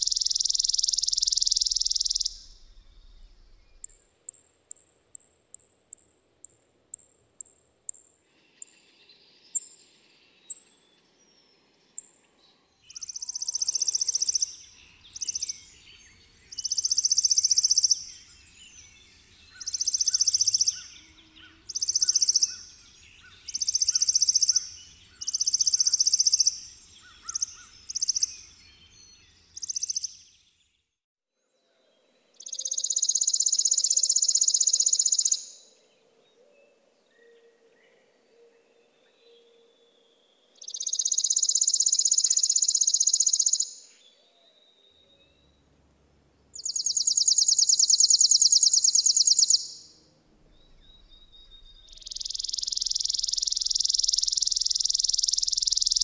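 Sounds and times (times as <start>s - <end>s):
sparrow dry rapid trills: 0.0s - 10.9s, 12.9s - 30.3s, 32.4s - 35.7s, 40.6s - 43.9s, 46.6s - 50.2s, 51.0s - 56.0s.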